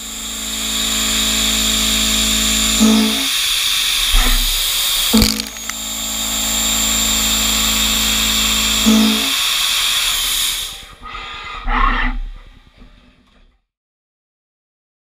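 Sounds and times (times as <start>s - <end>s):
machine hum: 0.0s - 11.0s
end mill cutting steel whine: 0.0s - 12.2s.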